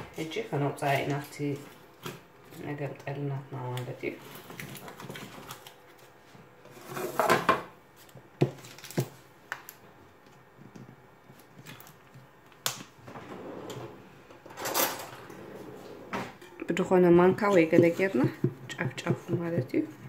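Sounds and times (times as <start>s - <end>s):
metal cake pan scraping counter: 6.6s - 7.6s.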